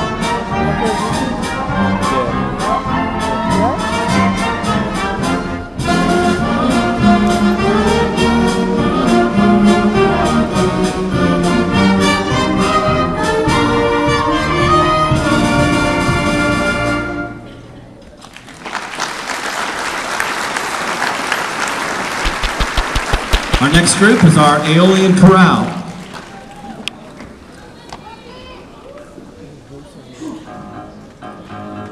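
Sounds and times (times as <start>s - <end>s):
concert band playing: 0.0s - 17.7s, 21.0s - 26.3s
audience applauding: 18.2s - 27.3s.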